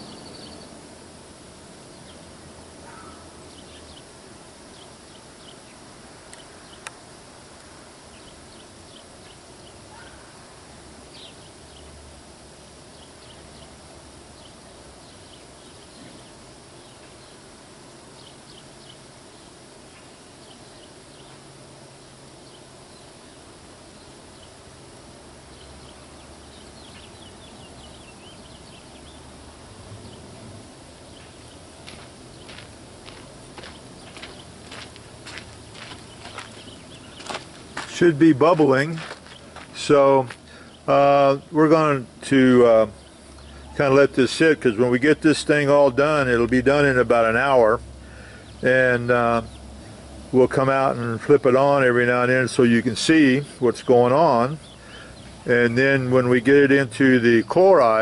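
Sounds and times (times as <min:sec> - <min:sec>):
faint high chirps: 0:00.0 - 0:00.8
outdoor background noise: 0:00.0 - 0:58.0.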